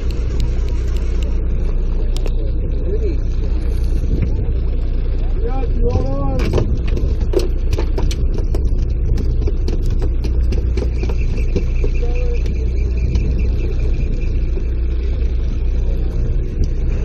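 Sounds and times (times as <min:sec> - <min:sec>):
boat engine rumbling: 0:00.0 - 0:17.0
faint high whine: 0:10.8 - 0:17.0.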